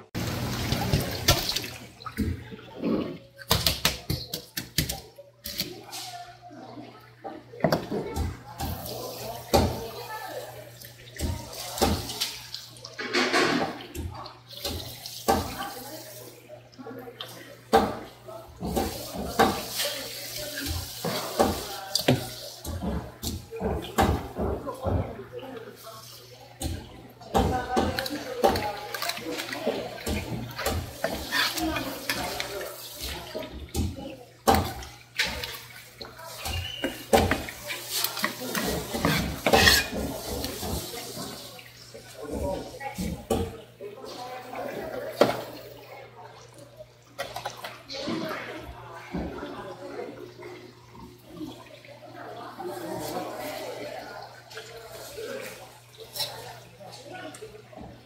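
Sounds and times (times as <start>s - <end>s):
tap water running and splashing: 0.0s - 58.0s
knife scraping fish: 30.1s - 33.1s, 36.3s - 40.9s.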